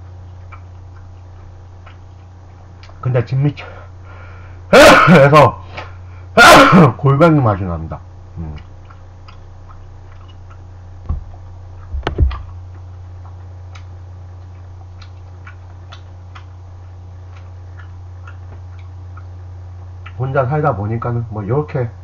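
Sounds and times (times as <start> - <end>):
steady low hum: 0.0 - 22.0
clicks of eating: 0.3 - 3.0, 8.4 - 19.4.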